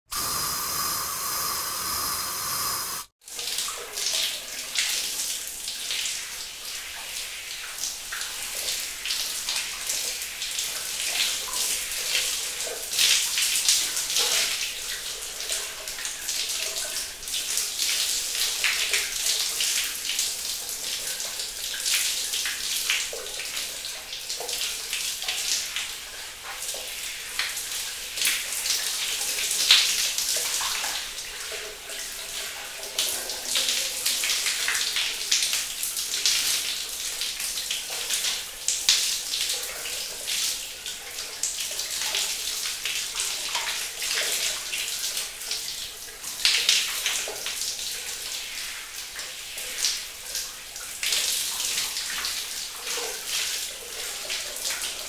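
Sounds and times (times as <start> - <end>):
shower water spraying: 0.1 - 3.1.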